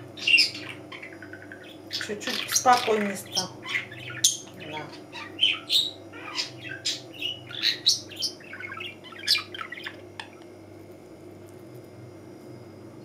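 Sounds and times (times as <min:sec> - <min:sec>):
budgerigar chirping and squawking: 0:00.2 - 0:10.3.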